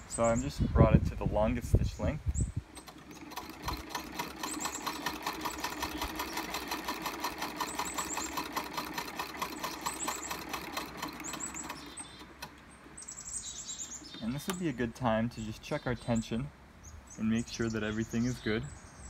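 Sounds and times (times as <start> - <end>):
birds chirping: 0.0 - 19.0
sewing machine clattering: 2.7 - 12.6.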